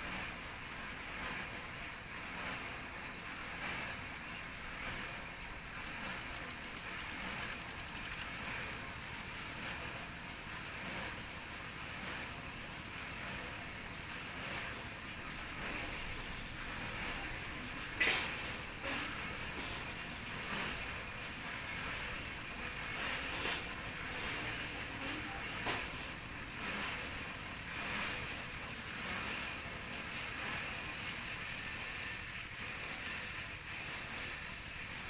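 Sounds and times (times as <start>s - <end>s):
pile-driving rig engine running: 0.0s - 35.0s.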